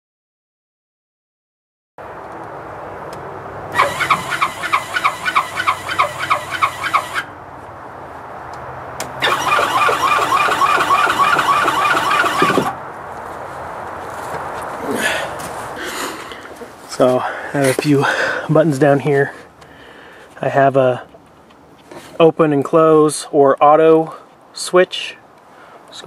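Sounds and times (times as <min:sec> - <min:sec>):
squealing pulsing door motor: 0:03.7 - 0:07.3, 0:09.2 - 0:12.8.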